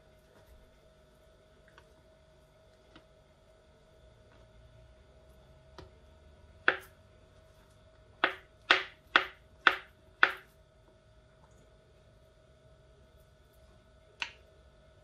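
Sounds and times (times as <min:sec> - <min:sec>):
knife chopping on plastic board: 0:06.6 - 0:07.0, 0:08.2 - 0:10.5.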